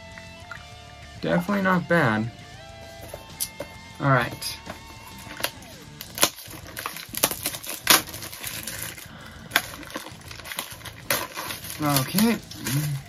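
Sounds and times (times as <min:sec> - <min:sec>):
cardboard box crackling and snapping: 0:03.0 - 0:13.0.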